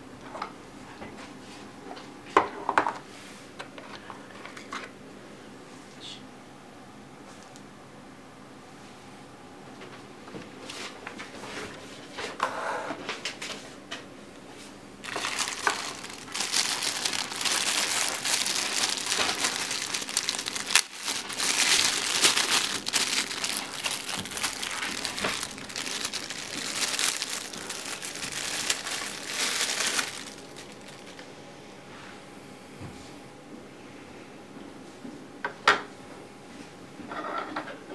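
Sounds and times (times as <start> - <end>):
plastic packaging crinkling: 15.0 - 31.4.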